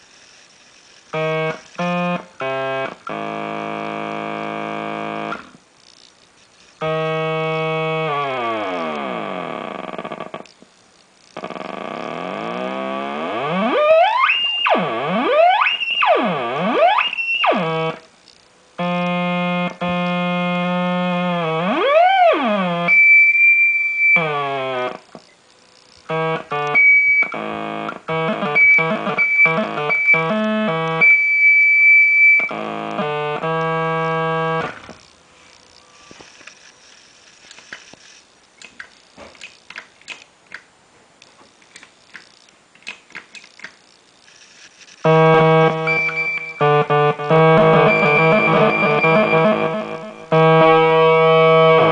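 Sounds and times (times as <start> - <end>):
buzzy synthesizer tones: 0.0 - 5.6, 6.6 - 10.5, 11.3 - 25.3, 25.9 - 36.3, 44.4 - 51.9.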